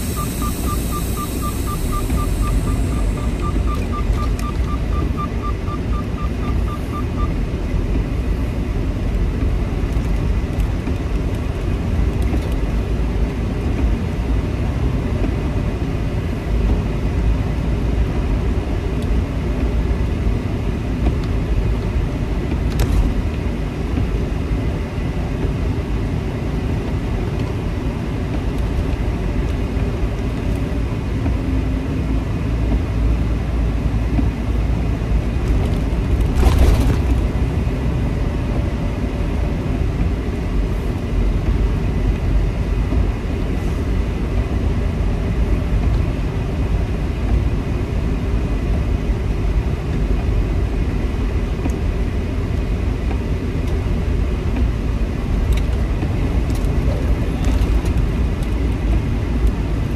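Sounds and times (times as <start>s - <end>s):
rapid short high beeps: 0.0s - 7.3s
truck engine and road rumble: 0.0s - 59.9s.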